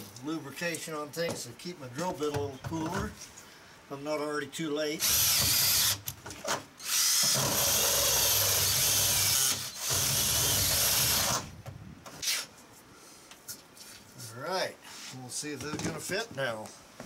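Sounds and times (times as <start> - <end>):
cordless drill cutting metal: 5.0 - 6.0, 6.8 - 11.5.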